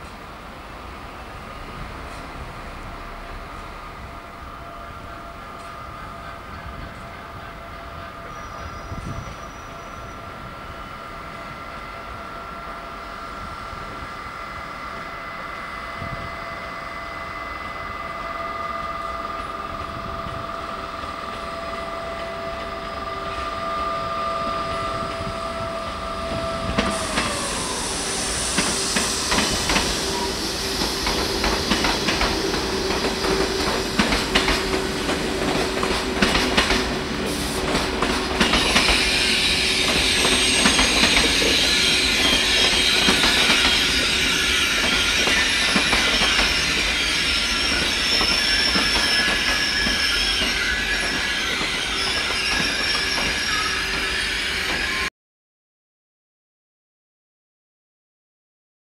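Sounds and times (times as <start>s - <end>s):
train power car whine: 0.0s - 55.1s
high squeal and hiss: 3.9s - 19.6s, 22.8s - 35.5s, 38.4s - 55.1s
wheels clacking over rail joints: 30.8s - 47.1s.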